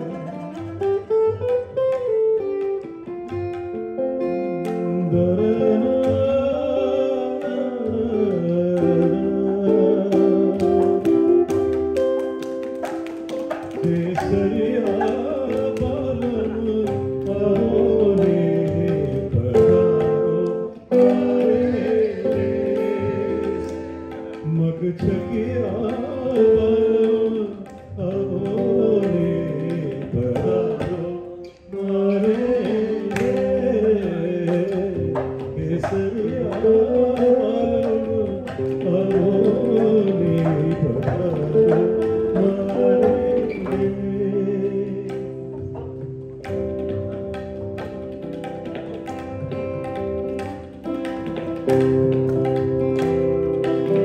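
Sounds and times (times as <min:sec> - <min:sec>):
electric guitar playing: 0:00.0 - 0:54.0
tabla playing: 0:00.0 - 0:54.0
man singing into a microphone: 0:04.3 - 0:11.8, 0:13.6 - 0:46.0.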